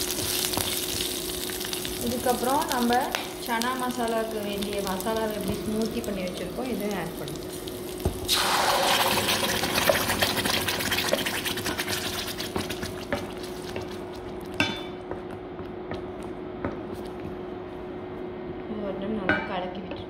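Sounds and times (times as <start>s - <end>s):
paste sizzling in hot oil: 5.9s - 14.1s.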